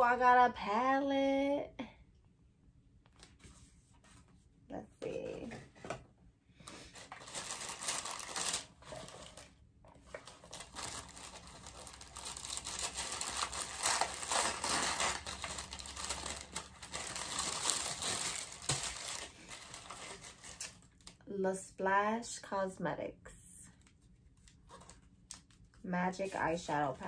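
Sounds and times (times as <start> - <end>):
packaging crinkling and tearing: 6.8 - 21.2.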